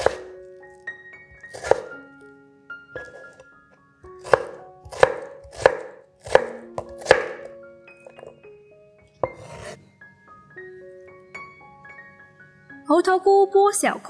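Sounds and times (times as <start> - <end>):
knife chopping on wooden board: 0.0 - 0.3, 1.5 - 1.9, 3.0 - 3.4, 4.2 - 8.4, 9.2 - 9.8.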